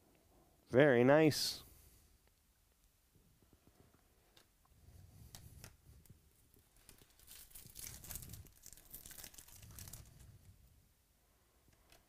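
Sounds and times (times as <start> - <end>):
foil wrapper tearing and crinkling: 6.8 - 10.2.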